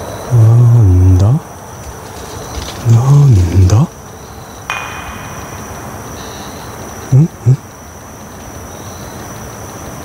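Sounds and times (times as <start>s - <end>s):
insect chirps: 0.0s - 10.0s
insects trilling: 0.0s - 10.0s
man making low sounds: 0.3s - 1.5s, 2.8s - 4.0s, 7.0s - 7.7s.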